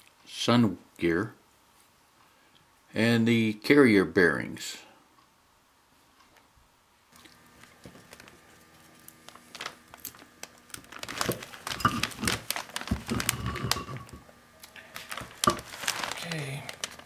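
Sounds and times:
plastic sheeting crinkling: 0:07.3 - 0:17.0.

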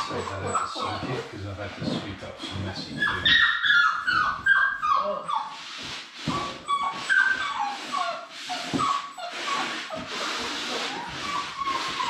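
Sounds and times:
puppies whining and yipping: 0:00.0 - 0:01.4, 0:02.9 - 0:12.0.

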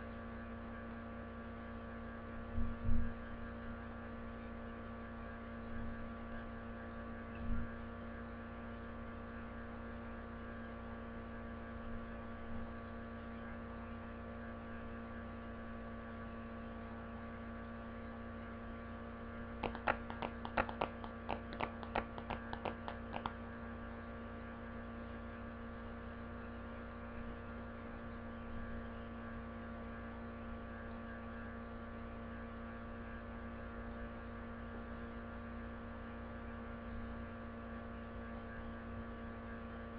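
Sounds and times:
electrical mains hum: 0:00.0 - 0:37.2
sharp clicks: 0:19.6 - 0:23.4.

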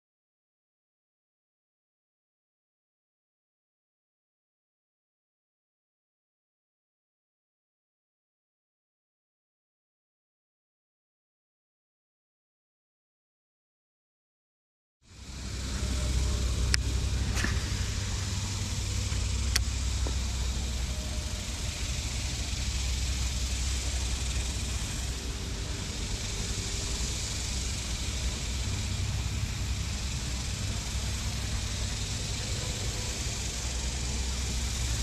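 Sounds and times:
steady low hum: 0:15.0 - 0:35.0
constant hiss: 0:15.1 - 0:35.0.

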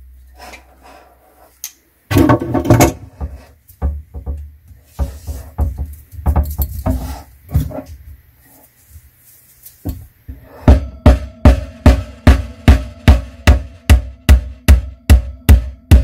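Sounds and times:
hammer knocking on wooden shelf: 0:02.1 - 0:07.8.

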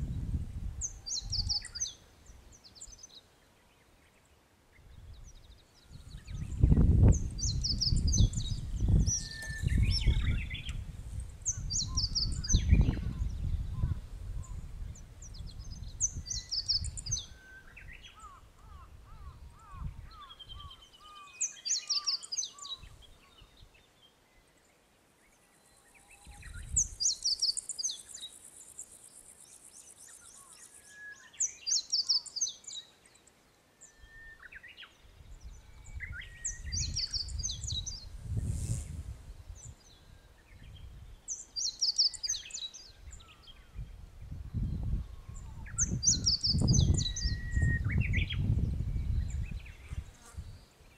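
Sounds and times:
wind rumble on microphone: 0:00.0 - 0:03.0, 0:04.8 - 0:20.8, 0:26.2 - 0:27.2, 0:35.1 - 0:41.4, 0:42.3 - 0:50.7
small songbirds singing: 0:00.1 - 0:50.9.

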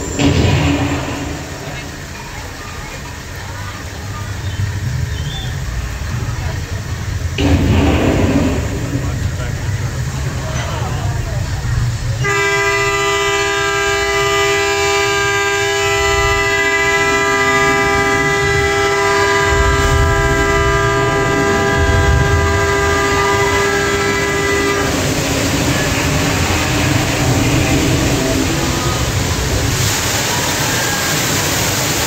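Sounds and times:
deep rumble: 0:00.0 - 0:31.0
rushing flood water: 0:00.0 - 0:32.0
horn-like warning tone: 0:12.2 - 0:29.8.

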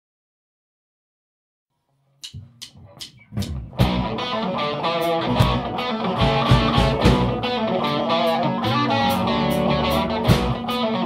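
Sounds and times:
drums and cymbals: 0:02.2 - 0:04.2, 0:05.0 - 0:07.6, 0:09.1 - 0:10.9
bass guitar: 0:02.2 - 0:11.0
electric guitar riff: 0:02.3 - 0:11.0.

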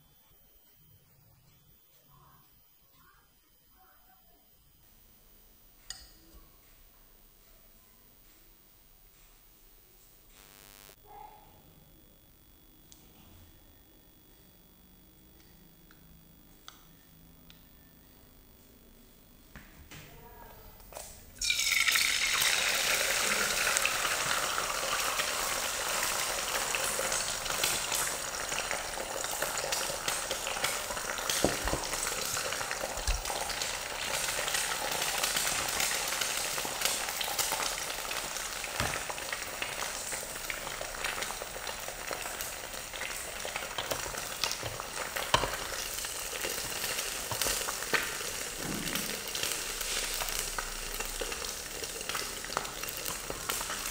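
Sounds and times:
egg sizzling in hot oil: 0:21.0 - 0:53.9.

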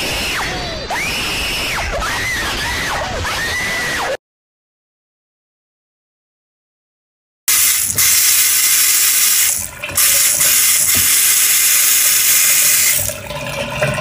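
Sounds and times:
faucet running into sink: 0:07.5 - 0:14.0.

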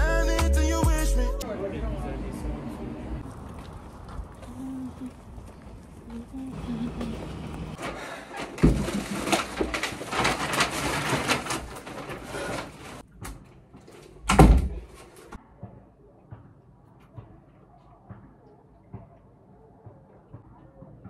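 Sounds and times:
clattering handling noises: 0:07.3 - 0:14.2.

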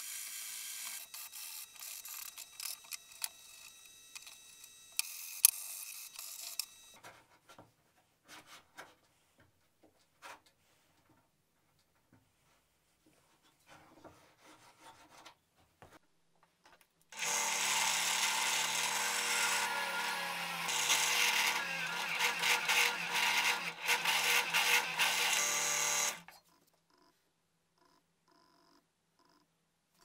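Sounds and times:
drill press boring through plywood: 0:17.2 - 0:26.2.

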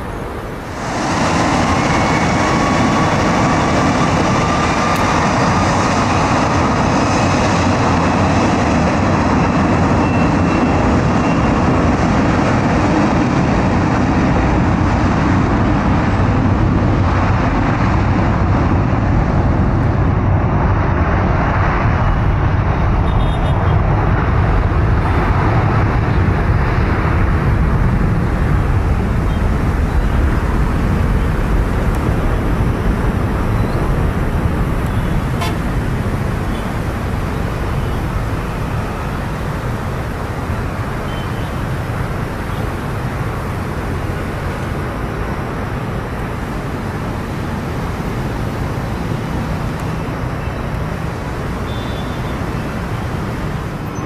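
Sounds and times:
jet engines at takeoff thrust: 0:00.0 - 0:54.0
runway spray noise: 0:00.0 - 0:54.0.

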